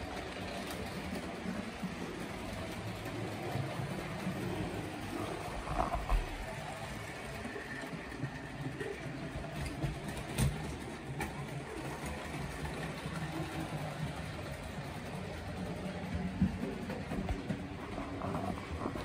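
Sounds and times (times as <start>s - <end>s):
model train rumbling on track: 0.0s - 19.0s.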